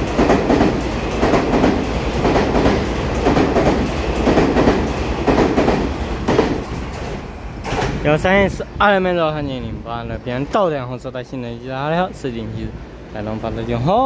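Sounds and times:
train wheels clicking over rail joints: 0:00.0 - 0:08.3.

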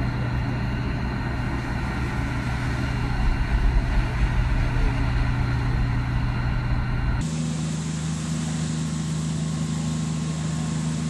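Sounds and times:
wind rumbling on microphone: 0:00.0 - 0:07.2
engine running steadily: 0:00.0 - 0:11.0.

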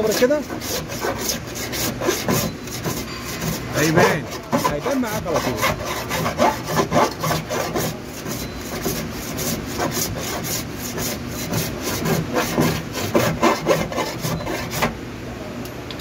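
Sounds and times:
file scraping metal panel: 0:00.0 - 0:15.0.

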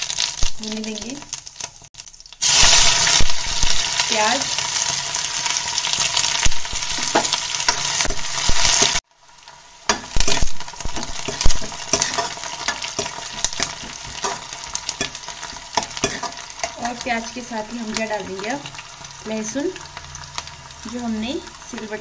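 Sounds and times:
onions sizzling in hot oil: 0:00.0 - 0:22.0
steel ladle scraping a pan: 0:09.9 - 0:17.0.

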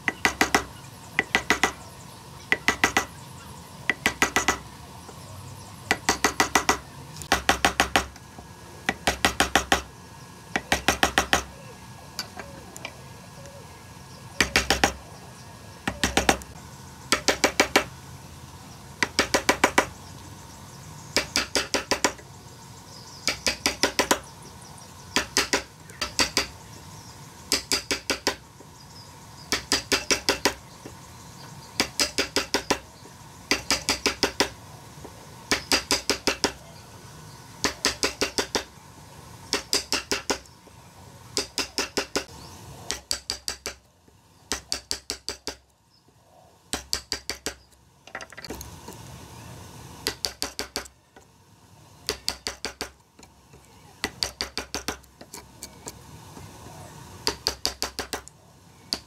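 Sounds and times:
hammer tapping chisel into wood: 0:02.5 - 0:03.1, 0:03.9 - 0:04.6.

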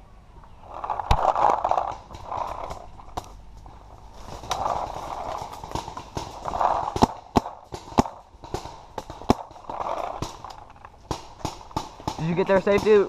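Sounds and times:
paintball markers firing: 0:04.4 - 0:13.0.

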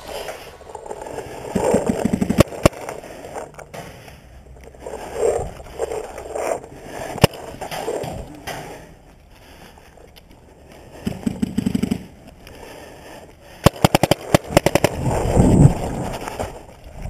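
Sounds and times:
paintball markers firing: 0:11.0 - 0:12.1, 0:13.6 - 0:15.0
gear scuffing and rustling: 0:15.0 - 0:17.0.

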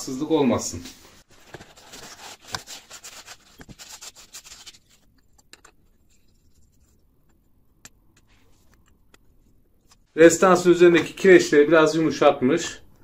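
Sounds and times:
paper towel scraping metal tubes: 0:01.2 - 0:07.5.

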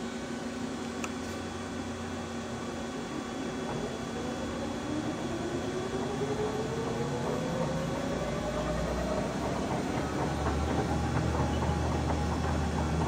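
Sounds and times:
low machine hum: 0:00.0 - 0:13.0
lathe spindle whine: 0:01.4 - 0:13.0.

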